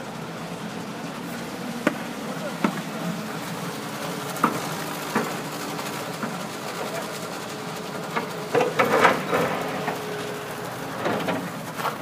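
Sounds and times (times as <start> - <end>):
diesel engine idling: 0.0 - 12.0
sharp knocks and clanks: 1.8 - 2.9, 4.4 - 5.4, 8.1 - 10.0.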